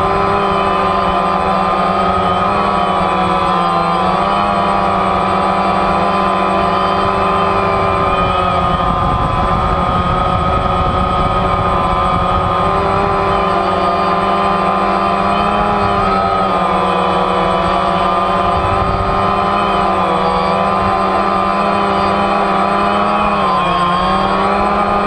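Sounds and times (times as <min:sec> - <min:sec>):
drone propellers whining: 0:00.0 - 0:25.0
low rumbling: 0:00.0 - 0:25.0.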